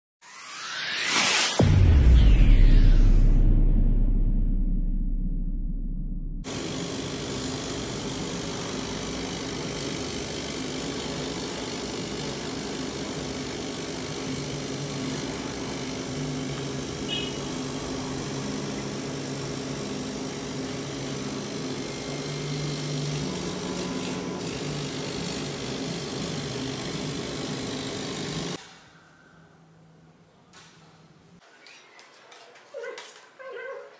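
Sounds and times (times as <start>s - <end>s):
laser cutting machine whirring: 6.5s - 28.6s.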